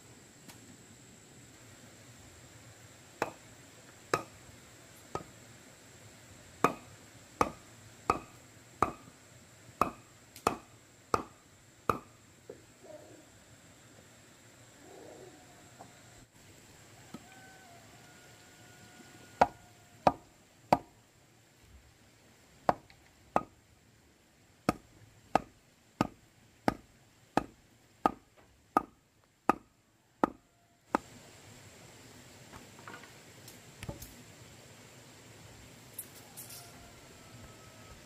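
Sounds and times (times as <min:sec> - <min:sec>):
sharp blows on wood: 0:03.2 - 0:03.5, 0:04.1 - 0:04.4, 0:06.6 - 0:09.2, 0:09.8 - 0:12.2, 0:22.7 - 0:23.6, 0:24.7 - 0:31.1.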